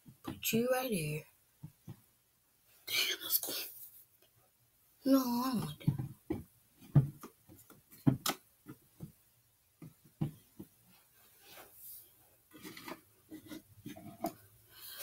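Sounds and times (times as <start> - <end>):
soft rustles of objects handled: 5.6 - 15.0.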